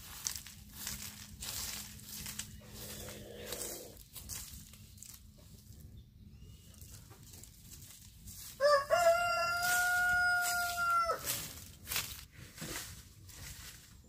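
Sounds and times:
rooster crowing: 8.6 - 11.4.

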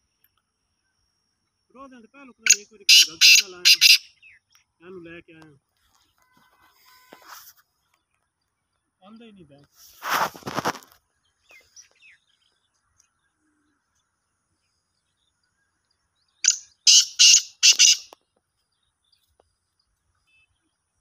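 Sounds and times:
bird calling harsh notes: 2.4 - 4.4, 16.4 - 18.2.

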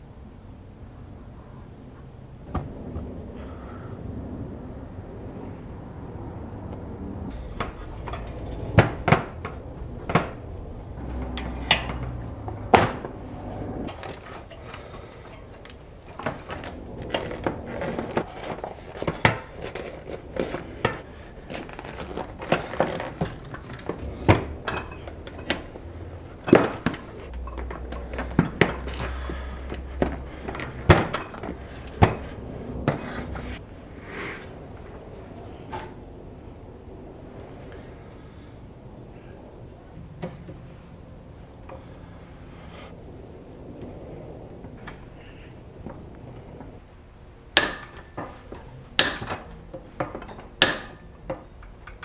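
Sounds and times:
low rubbing and rustling: 1.4 - 47.2
tyre and wheel clicks and knocks: 7.3 - 33.6, 47.5 - 52.0.

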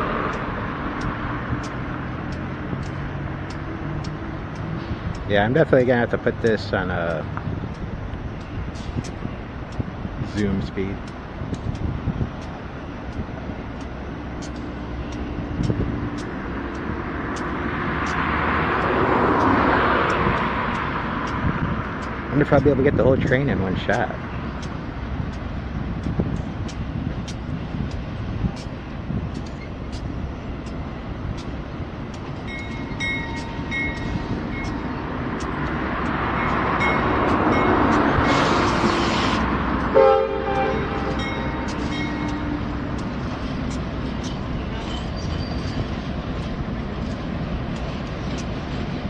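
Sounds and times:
diesel locomotive rumble: 0.0 - 49.0
rush of noise: 0.0 - 49.0
faint repeating tick: 1.0 - 5.3, 7.1 - 18.2, 18.8 - 38.2, 46.4 - 48.8.

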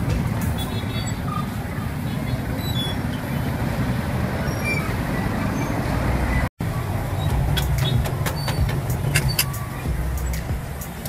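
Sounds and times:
street traffic rumble: 0.0 - 11.0
sharp high clicks and clinks: 7.6 - 9.6.

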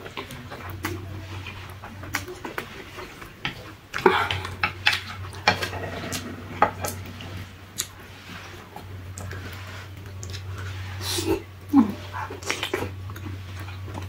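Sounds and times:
noodles slurped: 0.0 - 14.0.

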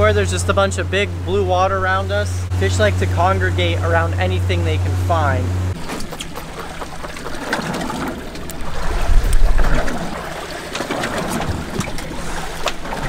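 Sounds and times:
water sloshing against boat hull: 0.0 - 13.0.

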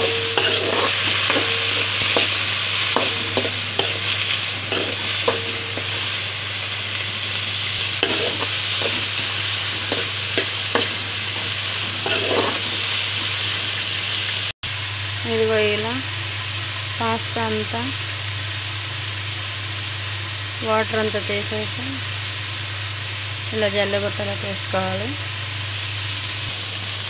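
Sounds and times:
spatula scraping pan: 0.0 - 6.4, 7.8 - 13.3
vegetables sizzling in hot oil: 0.0 - 27.0.

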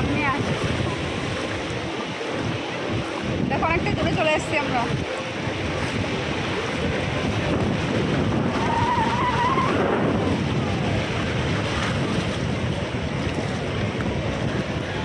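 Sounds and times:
waves breaking on beach: 0.0 - 15.0
wind buffeting microphone: 0.0 - 15.0.

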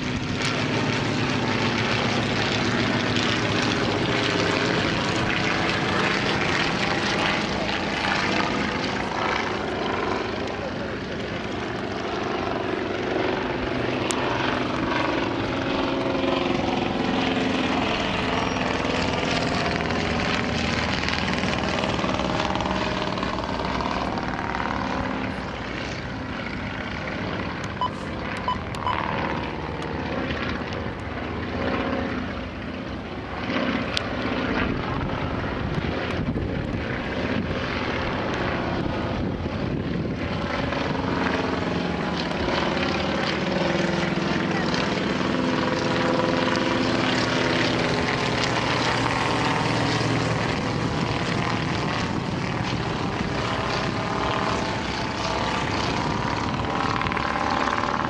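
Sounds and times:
biplane propeller engines overhead: 0.0 - 58.0.

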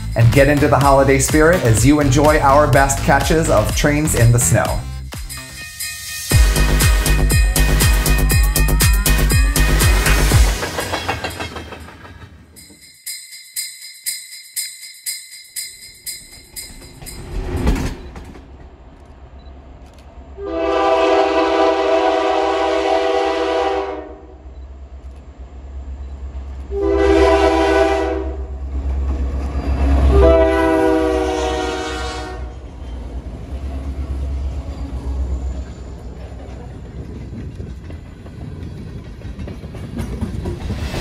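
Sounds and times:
train rumbling on rails: 0.0 - 12.9, 15.8 - 41.0
locomotive air horn blasts: 20.4 - 24.4, 26.7 - 28.5, 30.1 - 32.5.

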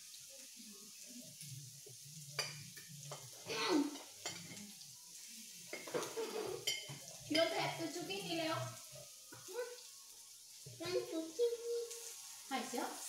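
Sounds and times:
meat sizzling on griddle: 0.0 - 13.0.

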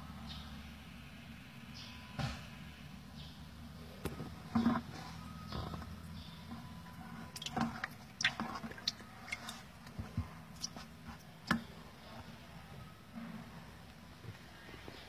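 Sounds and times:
low steady hum: 0.0 - 15.0
eels squelching in water: 4.1 - 11.8.

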